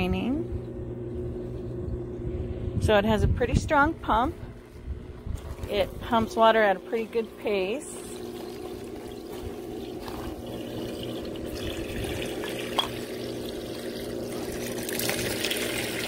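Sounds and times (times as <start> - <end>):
drain pump humming: 0.0 - 16.0
water pouring into pipe: 7.2 - 16.0.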